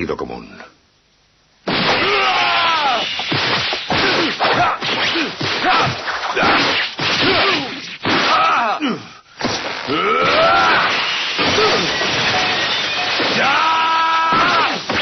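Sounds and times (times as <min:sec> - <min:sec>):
cartoon punch whooshes and smacks: 0:01.7 - 0:08.6
cartoon shouts and grunts: 0:02.0 - 0:03.0, 0:13.4 - 0:14.8.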